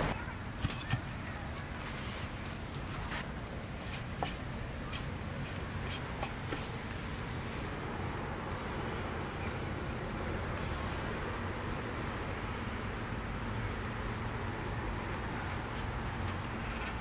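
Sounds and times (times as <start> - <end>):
insect high-pitched whine: 3.4 - 17.0.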